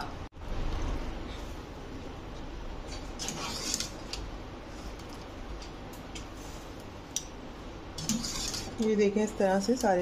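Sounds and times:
low steady hum: 0.0s - 10.0s
skimmer scraping metal pot: 3.2s - 4.0s, 8.0s - 8.9s.

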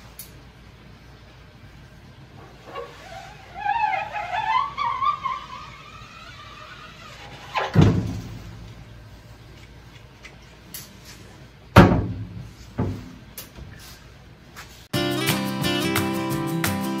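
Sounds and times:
hollow knocks of metal and wood: 11.8s - 13.7s.

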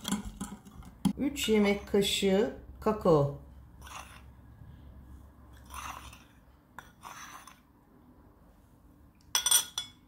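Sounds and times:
spoon scraping cocoa powder: 3.7s - 4.4s, 5.5s - 7.8s
spoon clinking against bowl: 9.3s - 10.0s.

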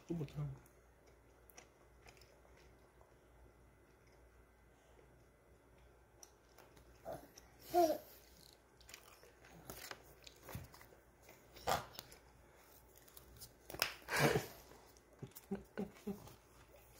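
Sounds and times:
snack food crunching and chewing: 0.0s - 16.9s.

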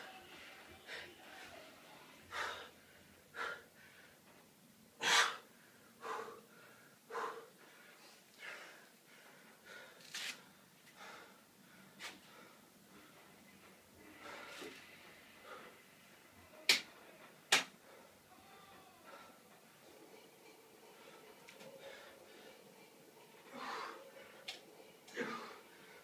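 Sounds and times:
man gasping breaths: 2.2s - 4.2s, 5.0s - 10.1s, 10.9s - 13.3s.

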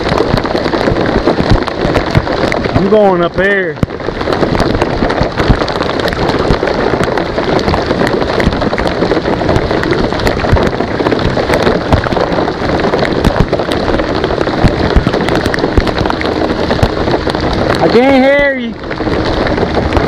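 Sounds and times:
heavy rain on water: 0.0s - 20.0s.

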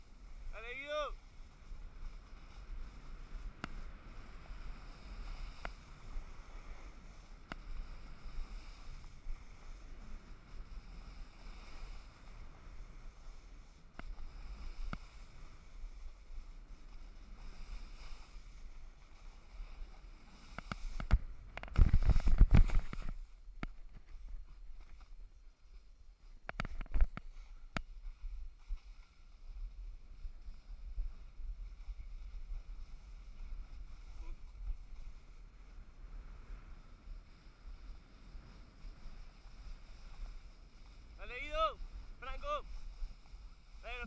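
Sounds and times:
snowboard sliding over snow: 0.0s - 44.0s.

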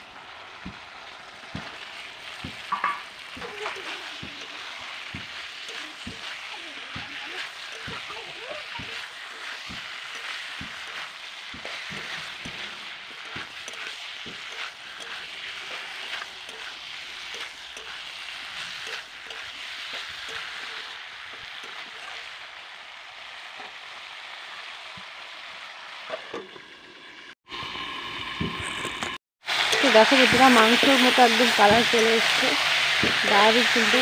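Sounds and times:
food sizzling in oil: 0.0s - 34.0s
metal spatula scraping pan: 2.4s - 22.3s
metal plate clinking on pan: 2.7s - 3.8s.

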